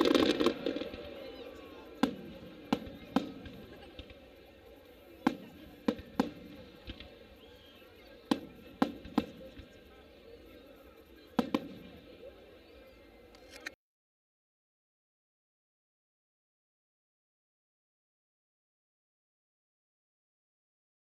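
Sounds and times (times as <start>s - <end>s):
firework shells bursting: 0.0s - 4.2s.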